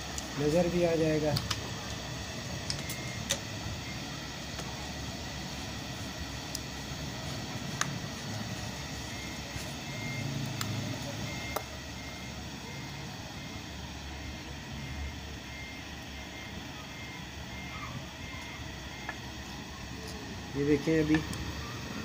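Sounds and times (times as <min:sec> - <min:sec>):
faint high tone: 0:16.7 - 0:18.7.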